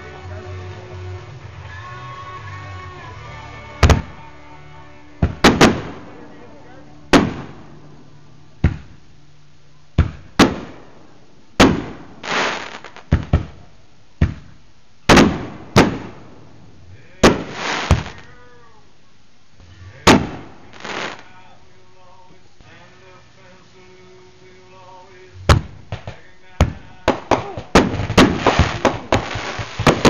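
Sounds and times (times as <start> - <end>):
fireworks bangs: 3.6 - 4.5, 5.2 - 9.1, 10.0 - 18.6, 19.9 - 21.5, 24.7 - 30.0
hissing crackle: 5.2 - 30.0.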